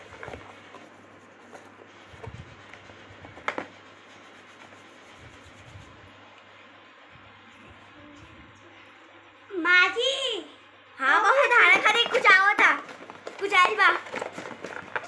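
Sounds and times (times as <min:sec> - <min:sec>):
hands rubbing together: 0:01.2 - 0:06.1
hands rummaging in cardboard box: 0:11.9 - 0:15.0.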